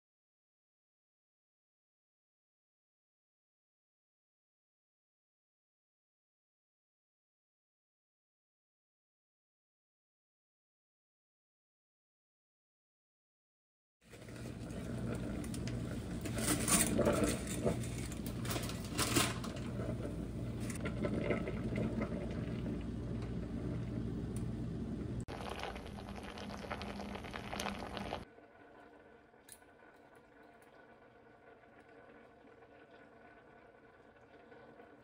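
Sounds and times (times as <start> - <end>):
water boiling in a pot: 14.0 - 35.0
spaghetti clattering in pot: 14.3 - 22.4
steady low hum: 14.4 - 28.3.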